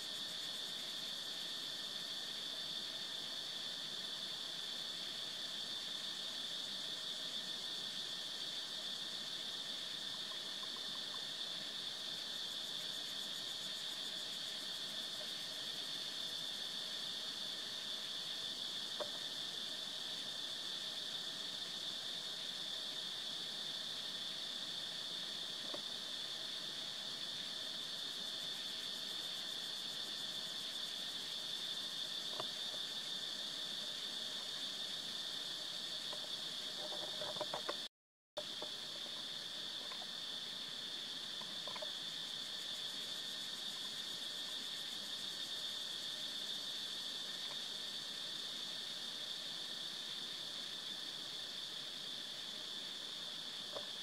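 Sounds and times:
insects droning: 0:00.0 - 0:54.0.

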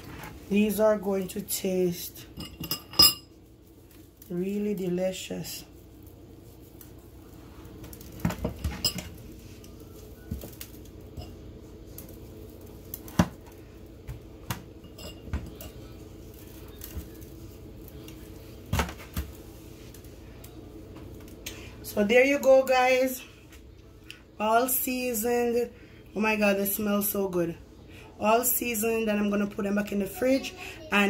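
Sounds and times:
faint steady hum: 0:00.0 - 0:31.0
utensils and dishes clinking: 0:02.2 - 0:03.4, 0:08.2 - 0:09.2, 0:14.8 - 0:16.0.

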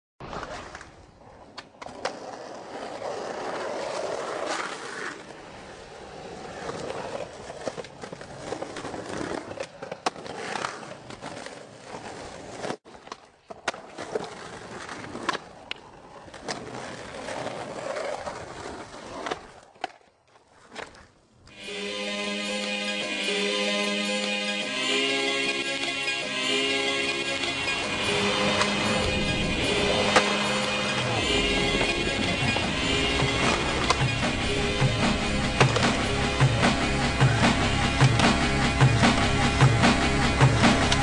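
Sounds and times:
skateboard wheels rolling: 0:00.2 - 0:21.6, 0:27.2 - 0:41.0
skateboard clacking on ground: 0:06.6 - 0:21.2.

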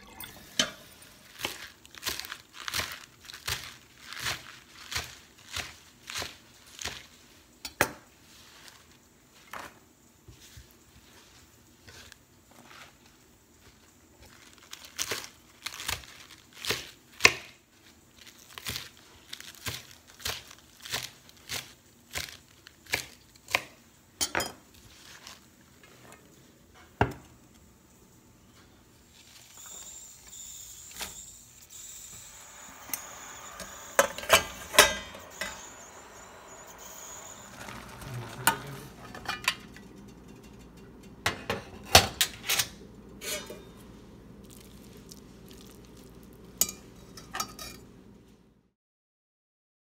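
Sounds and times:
metal bowl and utensils clinking: 0:00.0 - 0:02.9, 0:32.8 - 0:43.8, 0:46.6 - 0:47.9
rustling leaves: 0:00.9 - 0:07.2, 0:31.7 - 0:39.1.

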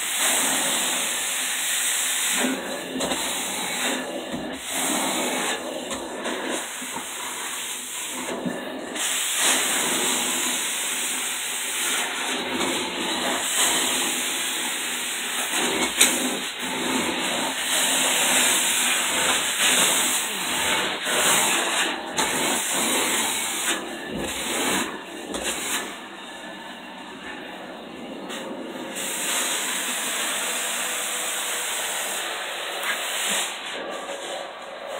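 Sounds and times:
carpet extractor suction hiss: 0:28.3 - 0:34.0.

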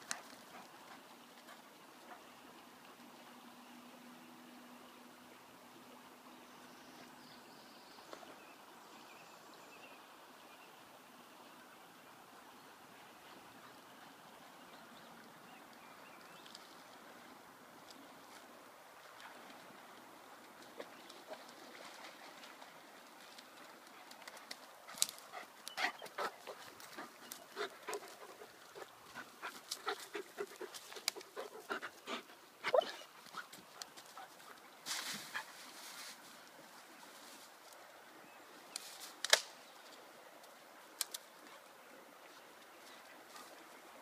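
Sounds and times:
dog panting: 0:24.9 - 0:34.6
sharp cracks: 0:39.2 - 0:39.6.

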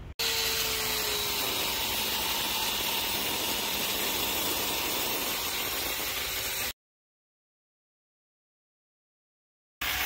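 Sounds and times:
angle grinder cutting steel: 0:00.2 - 0:06.8.

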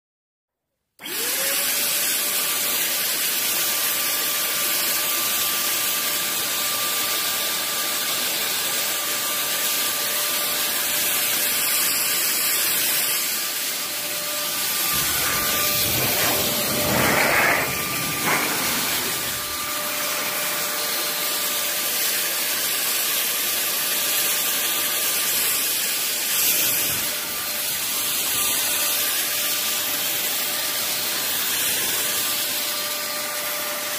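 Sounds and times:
loud spray hiss: 0:10.9 - 0:20.4
fogger motor whine: 0:12.5 - 0:21.8.

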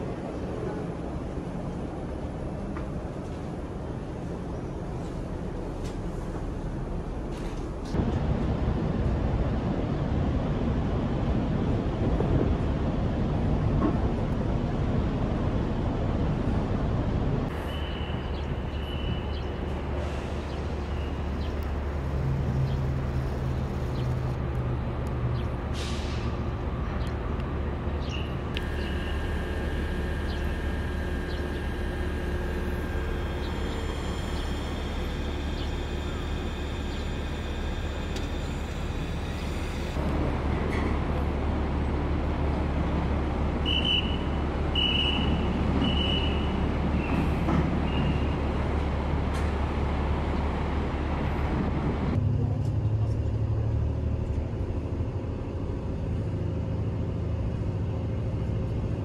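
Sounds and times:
low mechanical hum: 0:26.4 - 0:59.0
high steady whine: 0:28.4 - 0:40.3.

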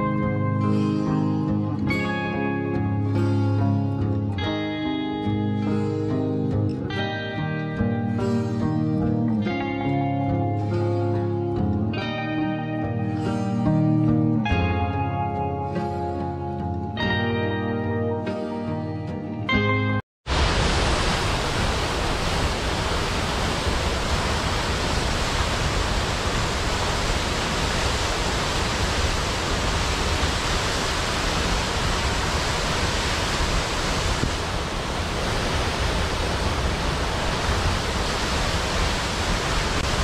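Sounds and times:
waterfall rushing: 0:20.3 - 0:40.0.

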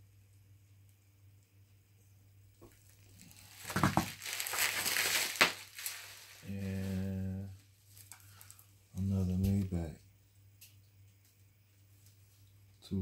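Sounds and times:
plastic packaging crinkling: 0:02.6 - 0:07.1, 0:07.9 - 0:08.7
hummed voice sound: 0:06.5 - 0:07.6.

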